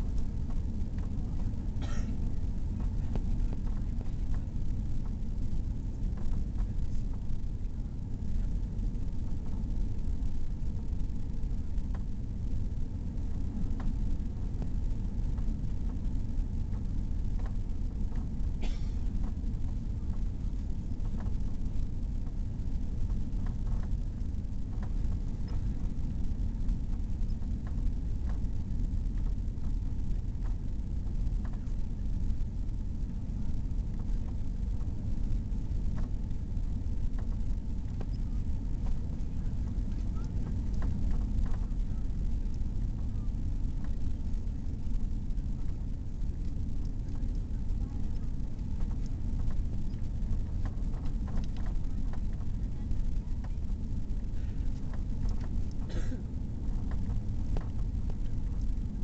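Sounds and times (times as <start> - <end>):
airplane cabin rumble: 0.0 - 59.0
faint ticks: 11.8 - 59.0.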